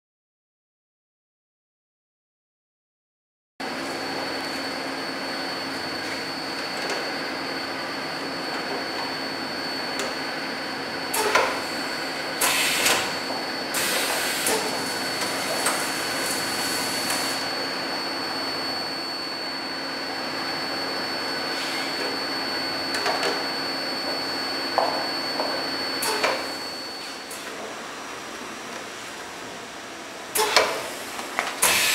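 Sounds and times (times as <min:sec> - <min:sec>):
machine hum with high tone: 0:03.6 - 0:31.9
pneumatic cylinder clunk: 0:11.1 - 0:11.6, 0:12.4 - 0:13.1, 0:13.7 - 0:15.9, 0:26.0 - 0:26.5, 0:30.3 - 0:31.9
compressed air hiss: 0:12.4 - 0:13.1, 0:13.7 - 0:17.4, 0:30.4 - 0:31.9.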